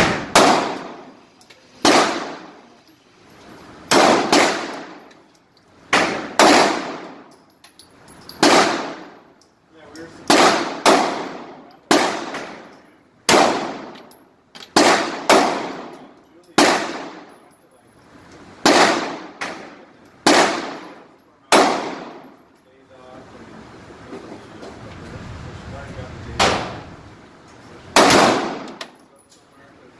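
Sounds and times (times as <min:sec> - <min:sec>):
handgun shots echoing indoors: 0:03.9 - 0:05.3, 0:05.9 - 0:07.4, 0:10.2 - 0:17.4, 0:28.0 - 0:29.0.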